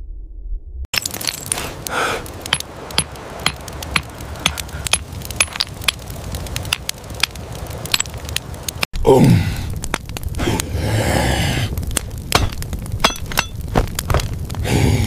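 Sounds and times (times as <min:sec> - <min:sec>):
stone-on-stone knapping clicks: 0:01.0 - 0:08.9.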